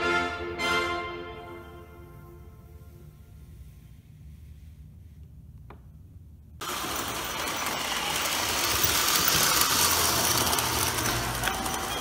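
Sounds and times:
toy train motor whirring: 6.6 - 12.0
wheels clattering over rails: 6.6 - 12.0.

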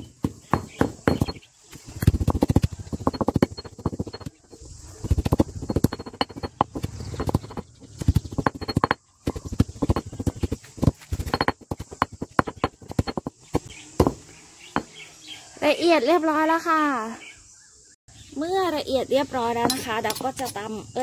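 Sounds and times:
stone pestle pounding in mortar: 0.0 - 14.2.

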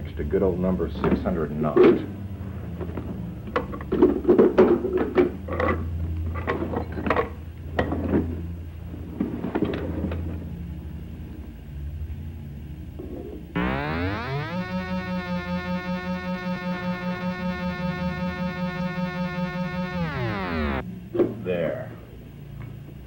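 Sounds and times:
synthesizer tone sweeping upward: 13.6 - 20.8
steady low hum: 13.6 - 21.0.

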